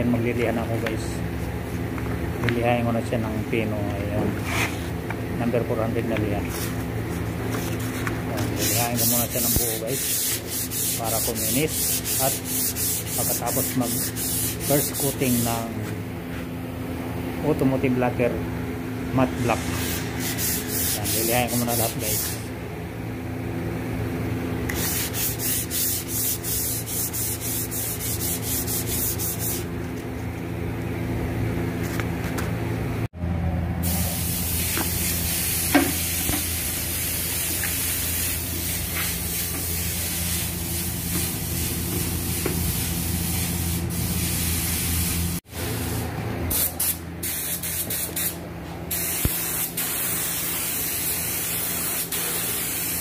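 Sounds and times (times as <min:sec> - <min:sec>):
steady low hum: 0:00.0 - 0:52.9
sandpaper rasping: 0:04.4 - 0:04.9, 0:07.5 - 0:15.6, 0:19.5 - 0:22.4, 0:24.7 - 0:29.7
spray gun hissing: 0:33.8 - 0:45.2, 0:45.8 - 0:53.0.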